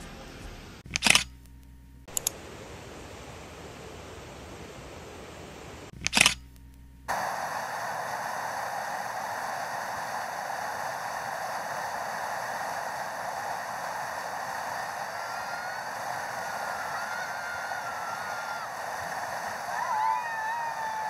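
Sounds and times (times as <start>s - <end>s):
river rapids roaring: 12.8s - 21.0s.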